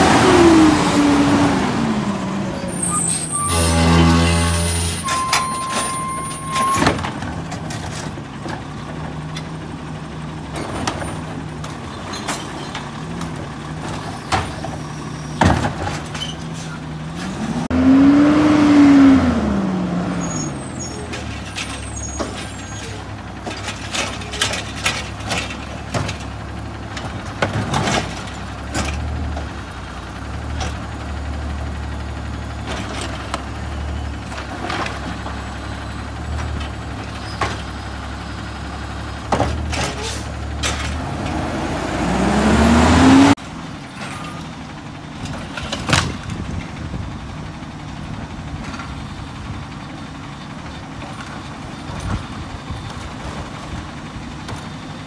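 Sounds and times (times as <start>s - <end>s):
garbage truck engine running: 0.0s - 17.7s, 19.0s - 55.0s
knocks and clanks: 10.5s - 16.6s, 23.4s - 29.5s.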